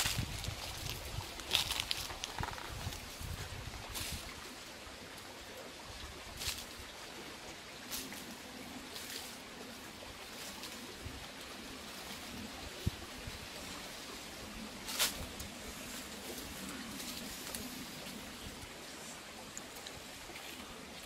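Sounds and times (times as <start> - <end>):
footsteps crunching dry leaves: 0.0 - 4.3
outdoor background hiss: 0.0 - 21.0.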